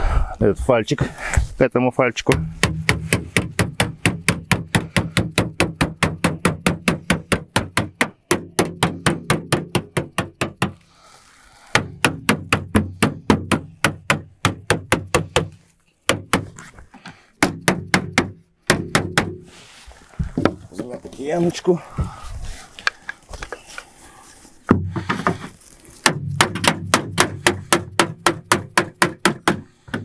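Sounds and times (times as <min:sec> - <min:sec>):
mallet tapping on sheet metal: 0:02.3 - 0:10.8, 0:17.4 - 0:19.4, 0:26.1 - 0:29.6.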